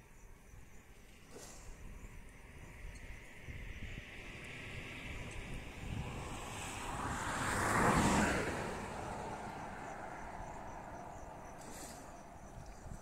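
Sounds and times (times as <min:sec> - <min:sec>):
vehicle passing by: 0:04.0 - 0:12.6.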